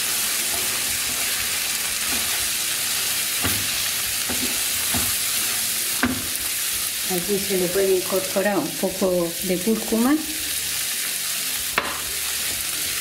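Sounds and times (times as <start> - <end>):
rice sizzling in oil: 0.0 - 13.0
spatula scraping and knocking pan: 0.4 - 6.5.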